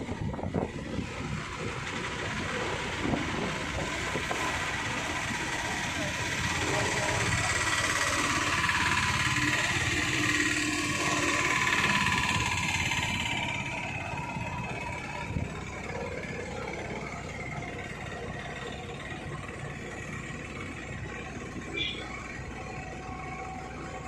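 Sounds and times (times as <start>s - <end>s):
road and wind noise: 0.0s - 24.0s
small vehicle engine running: 0.0s - 24.0s.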